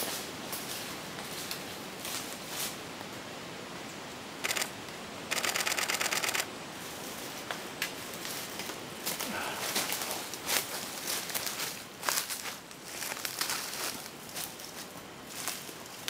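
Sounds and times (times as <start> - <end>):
camera shutter clicks: 4.4 - 6.5.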